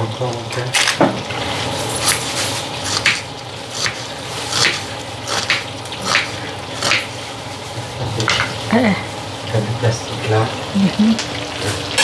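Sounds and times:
knife cutting food: 0:03.8 - 0:07.1.

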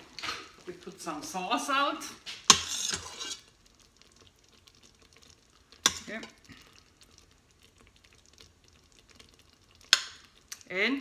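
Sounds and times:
ladle scraping sauce: 0:02.3 - 0:09.5.

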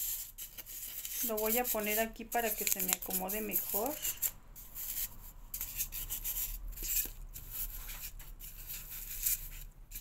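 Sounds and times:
hands rubbing foam: 0:00.0 - 0:10.0.

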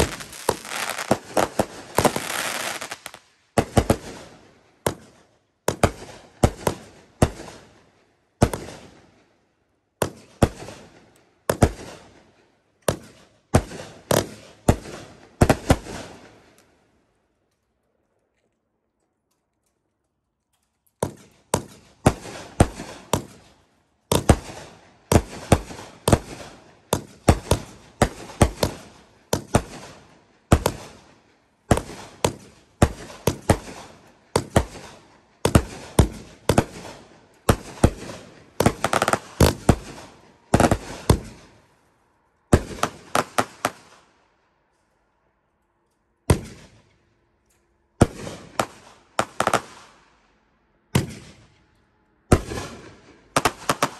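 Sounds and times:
fireworks reports: 0:00.0 - 0:04.2.

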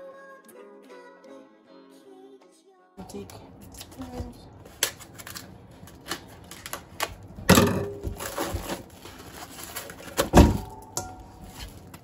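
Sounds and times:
plastic wrap crinkling: 0:03.7 - 0:12.0.

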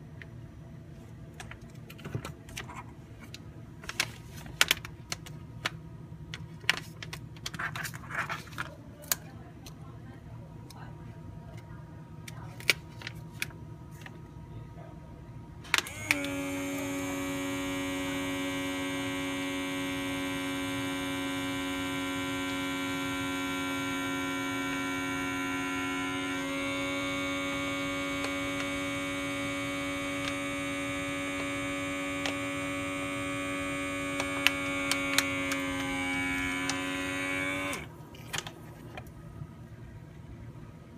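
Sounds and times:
electric vacuum pump running: 0:15.6 - 0:39.2.

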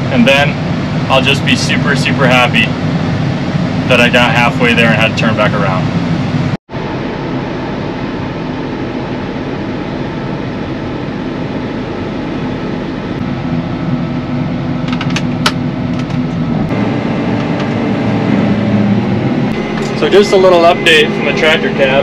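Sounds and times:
tractor engine running: 0:07.2 - 0:22.0.

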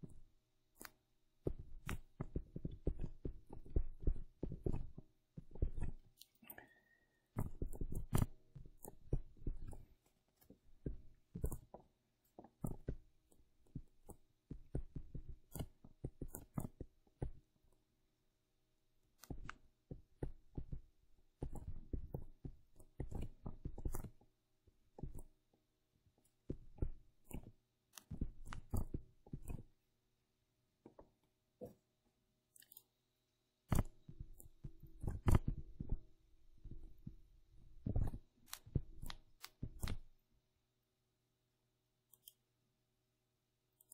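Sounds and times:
stylus tapping on tablet screen: 0:00.0 - 0:06.2, 0:07.3 - 0:17.7, 0:19.1 - 0:25.6, 0:26.2 - 0:29.8, 0:33.7 - 0:40.1.

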